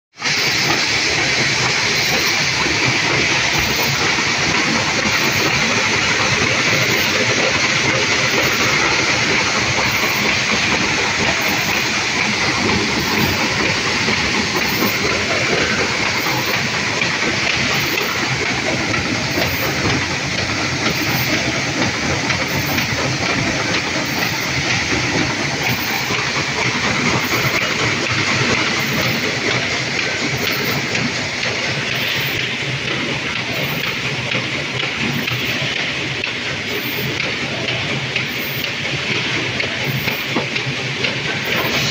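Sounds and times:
paper forming machine running: 0.2s - 41.9s.

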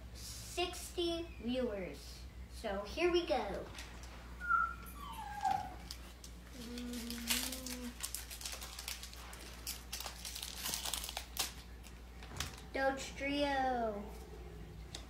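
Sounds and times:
steady low hum: 0.0s - 15.0s
foil pack crinkling and tearing: 5.7s - 12.8s.

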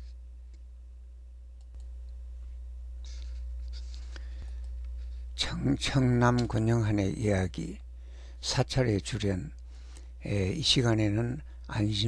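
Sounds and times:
faint clicks: 1.6s - 2.2s.

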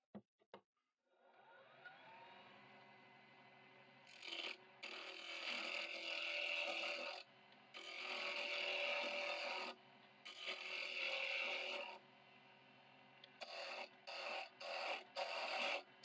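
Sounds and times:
lathe motor hum: 1.4s - 16.0s
chisel scraping spinning wood: 4.1s - 12.0s, 13.3s - 16.0s.

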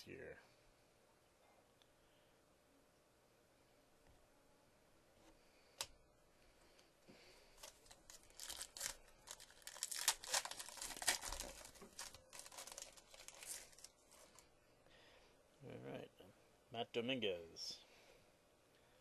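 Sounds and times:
foil wrapper crackling and ripping: 7.6s - 14.4s.

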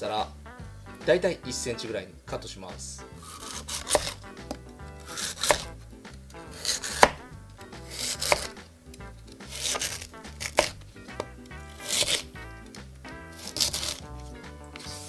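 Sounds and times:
knife crunching through root: 3.2s - 5.8s, 6.4s - 15.0s
knife knocking on cutting board: 6.8s - 7.2s.

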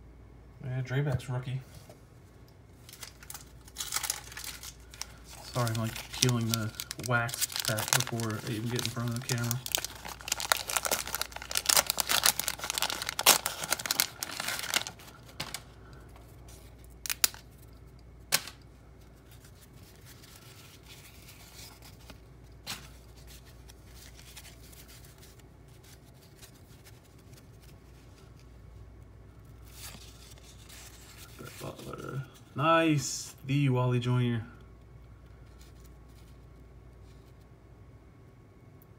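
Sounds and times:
wrapper crinkling and tearing: 2.8s - 18.6s, 19.2s - 28.4s.

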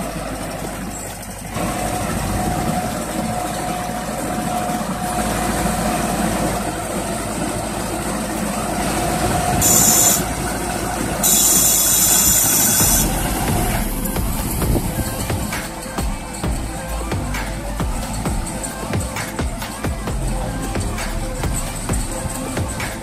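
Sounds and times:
tractor engine running: 0.0s - 23.0s
high hiss bursts: 9.6s - 10.4s, 11.2s - 23.0s.

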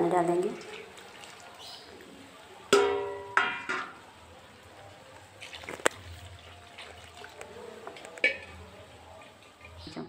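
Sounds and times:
water pouring: 0.0s - 9.9s
steel bowl clinking on metal pot: 2.7s - 4.0s, 7.8s - 10.0s.

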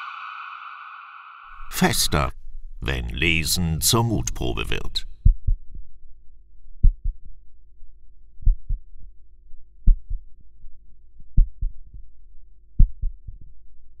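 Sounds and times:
low steady hum: 1.5s - 12.4s
heartbeat thumps: 5.2s - 5.9s, 6.8s - 7.3s, 8.4s - 8.9s, 9.8s - 10.3s, 11.3s - 12.0s, 12.8s - 13.5s.

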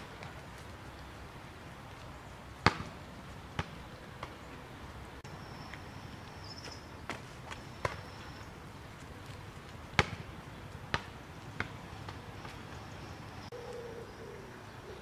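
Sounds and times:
basketball bouncing on paving: 2.6s - 4.4s, 6.6s - 8.4s, 9.8s - 12.7s.

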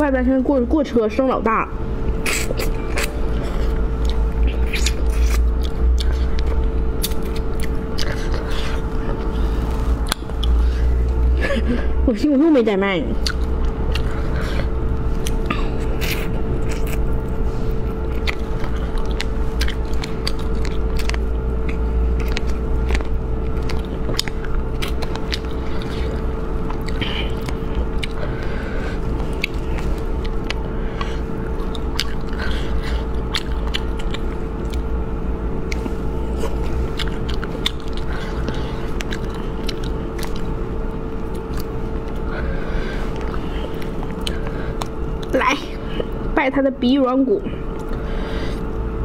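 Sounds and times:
constant hum: 0.0s - 49.0s
person chewing with wet mouth clicks: 2.2s - 9.4s, 10.0s - 11.2s, 13.2s - 14.2s, 18.0s - 28.4s, 29.2s - 35.0s, 35.6s - 42.2s, 43.1s - 45.4s.

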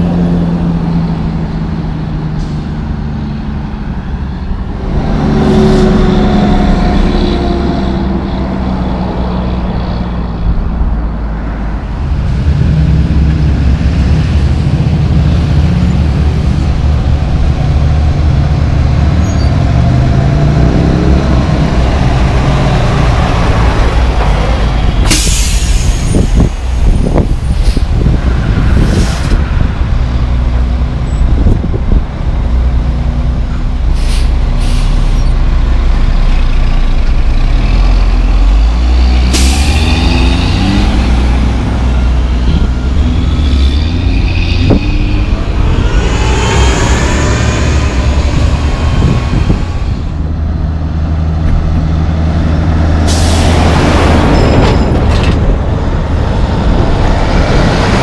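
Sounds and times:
diesel trucks accelerating: 0.0s - 58.0s
heavy truck passing by: 0.0s - 58.0s
air brake hisses: 25.1s - 26.5s, 34.0s - 35.3s.

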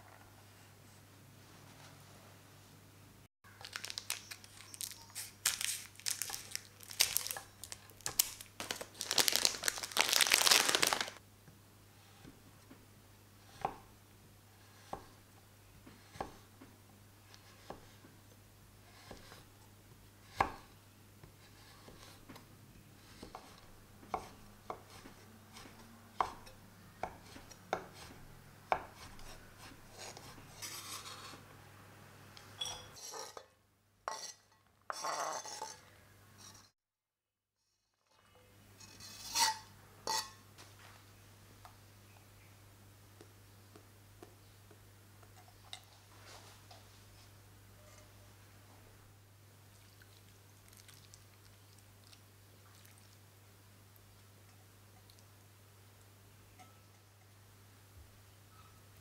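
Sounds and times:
crinkling and tearing wrapper: 3.5s - 11.2s.

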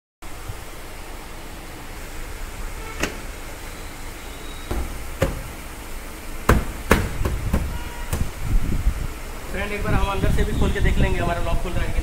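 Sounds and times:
hand knocking on plastic door panel: 4.7s - 5.5s, 6.5s - 8.3s.

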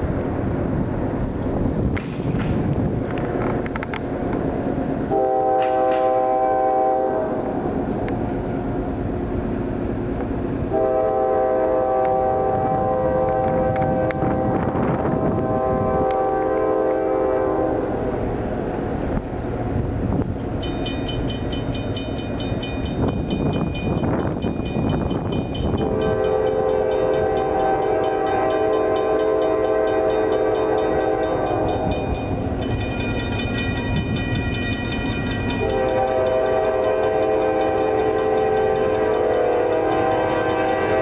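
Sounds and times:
train rumble: 0.0s - 41.0s
locomotive air horn: 5.1s - 7.6s, 10.7s - 18.0s, 25.7s - 32.1s, 35.6s - 41.0s.

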